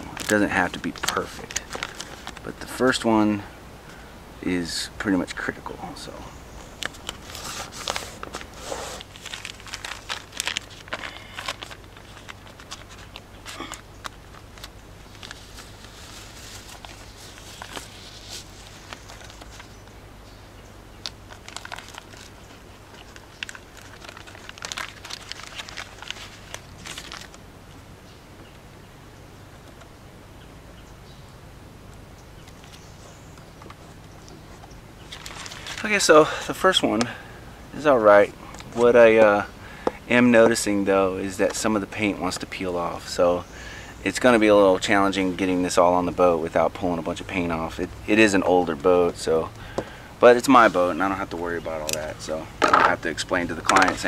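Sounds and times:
vinyl decal rustling and crinkling: 0.0s - 3.2s, 5.2s - 19.9s, 21.1s - 27.4s, 32.4s - 37.2s, 37.8s - 43.4s, 50.2s - 54.0s
steady low hum: 0.0s - 54.0s.

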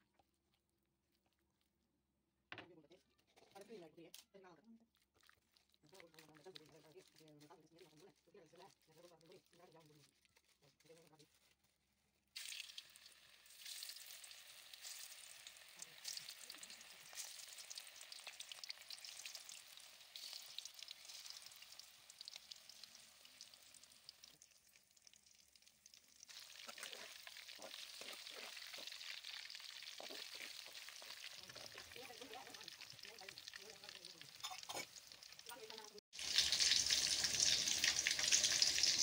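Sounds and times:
chicken sizzling in hot oil: 12.3s - 39.0s.

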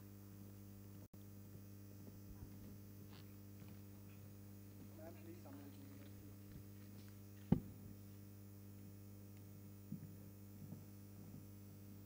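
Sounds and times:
electrical mains hum: 0.0s - 12.0s
sharp thump: 7.5s - 7.8s
soft knock: 7.5s - 7.8s.

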